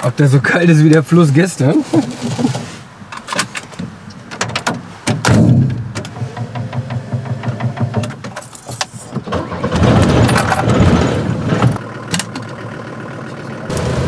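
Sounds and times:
van engine running: 4.9 - 14.0.

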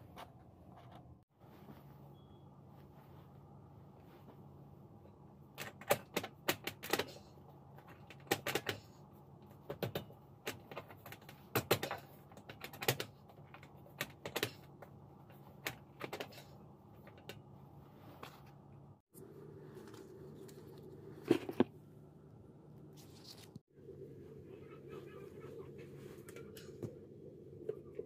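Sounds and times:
steady low hum: 16.4 - 28.0.

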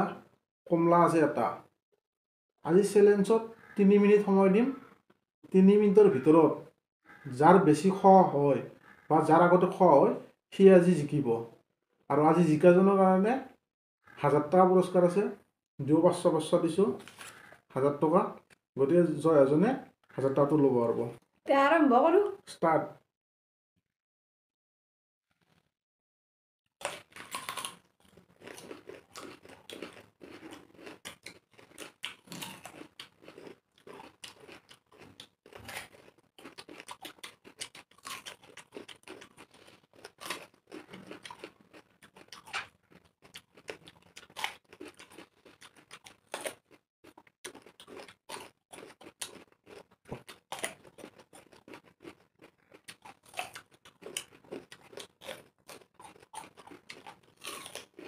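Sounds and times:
people crunching and chewing fruit: 3.0 - 12.6, 16.1 - 19.0, 26.8 - 58.0.

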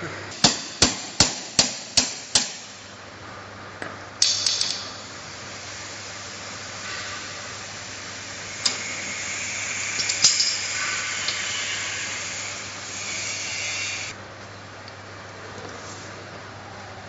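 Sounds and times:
hammer striking steel: 0.4 - 2.8.

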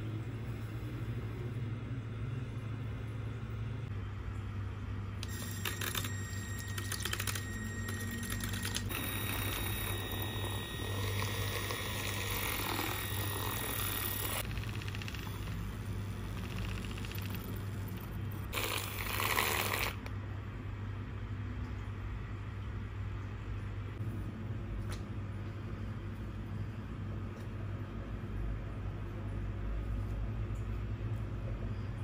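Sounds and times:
milk frother motor whine: 5.2 - 20.1.

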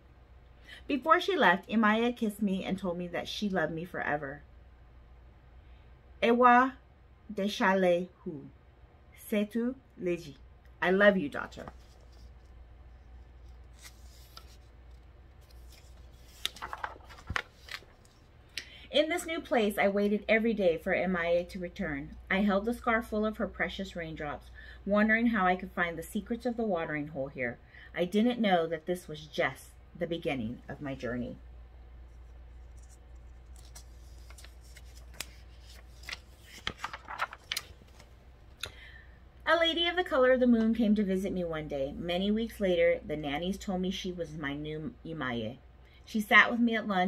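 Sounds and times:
faint low hum: 0.0 - 47.0
book pages rustling: 11.4 - 18.3, 32.0 - 38.2.

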